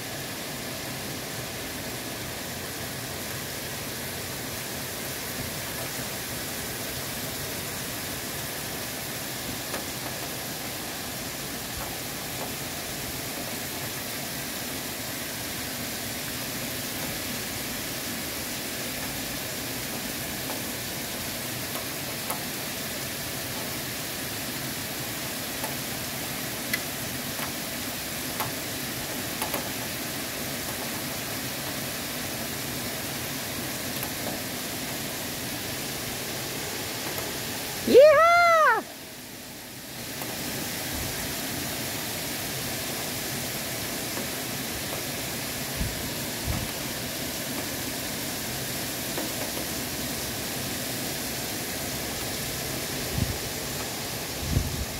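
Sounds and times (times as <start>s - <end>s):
heavy rain falling: 0.0s - 54.9s
sharp drip ticks: 26.7s - 27.7s.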